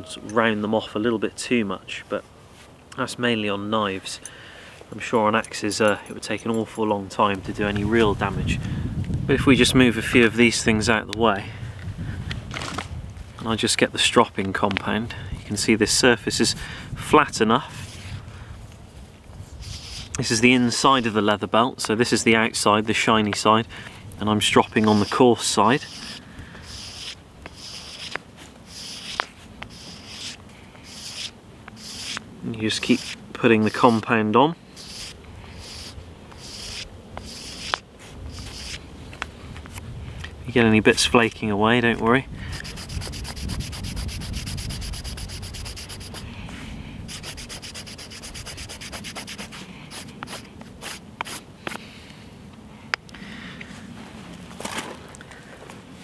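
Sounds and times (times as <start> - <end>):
compound rubbing on leather belt: 19.6 - 20.2, 24.6 - 34.0, 34.8 - 38.8, 42.5 - 46.3, 47.1 - 51.4.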